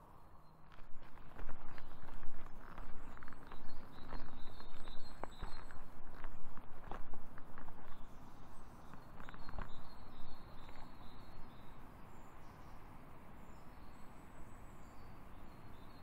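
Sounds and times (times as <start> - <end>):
footsteps on a path: 0.7 - 11.5.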